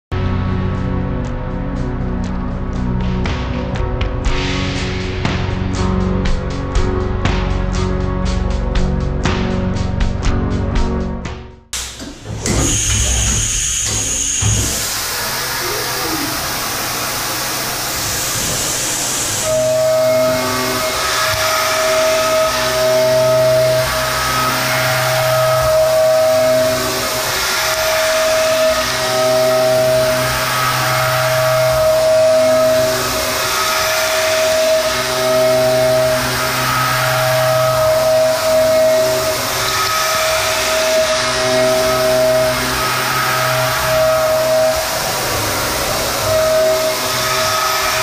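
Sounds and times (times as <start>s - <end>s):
hiss: 11.8s - 48.0s
low machine hum: 11.8s - 48.0s
milling machine cutting steel: 11.8s - 48.0s.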